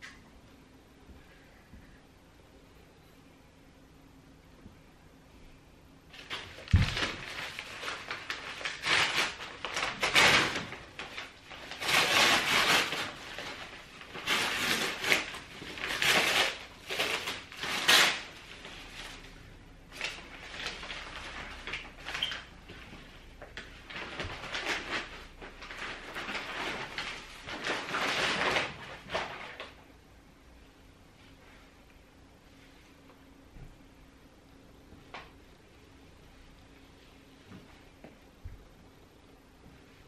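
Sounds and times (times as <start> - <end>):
paper crinkling and rustling: 6.1 - 29.8.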